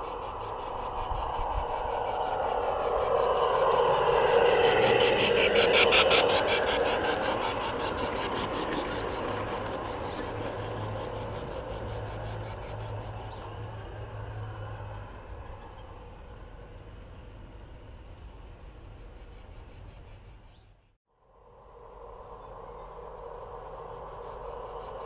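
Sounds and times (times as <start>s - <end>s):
wheels clicking over rail joints: 0.0s - 17.7s
model train motor whine: 0.0s - 17.9s
wheels rolling on track: 0.0s - 18.2s
low hum: 0.0s - 20.4s.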